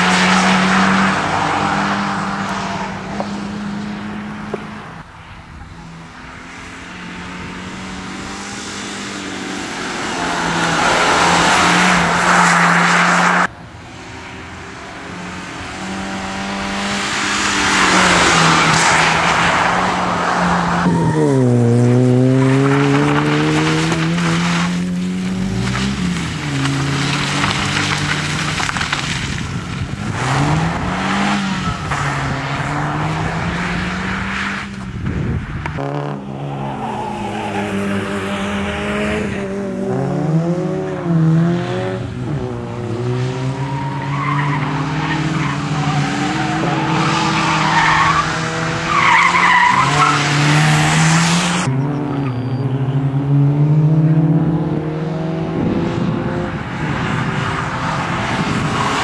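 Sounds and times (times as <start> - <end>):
rally car engine revving hard: 15.1 - 29.2, 30.0 - 34.7, 37.6 - 59.0
tyres sliding on gravel: 16.9 - 32.6.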